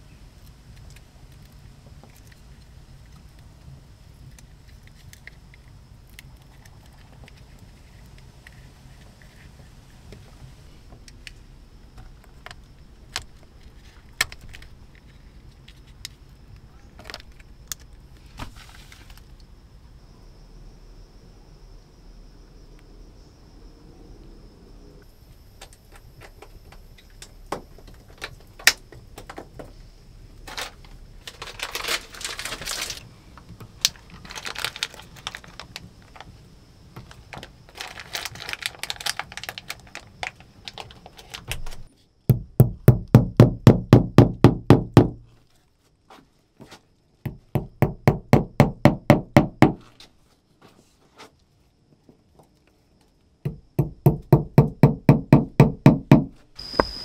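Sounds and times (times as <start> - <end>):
handling rustles: 30.5 - 36.4
rapid knocking on wood: 42.3 - 45.2, 47.3 - 49.8, 53.5 - 56.4.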